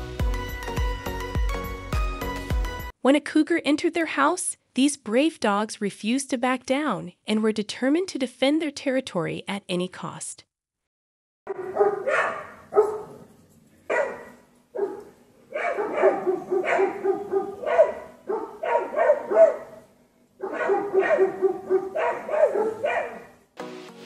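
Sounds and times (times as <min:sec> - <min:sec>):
dogs barking: 0:11.5 - 0:13.3, 0:13.9 - 0:23.4.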